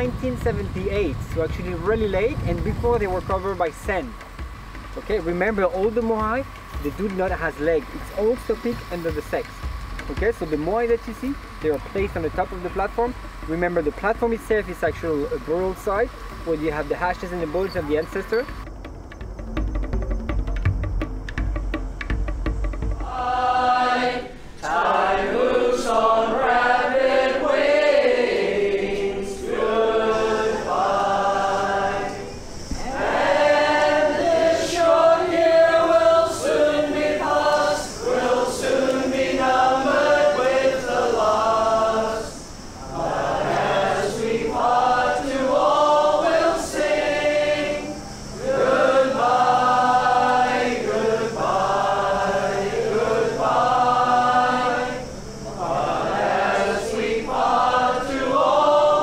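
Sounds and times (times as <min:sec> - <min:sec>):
group singing unaccompanied: 0:22.7 - 0:59.0.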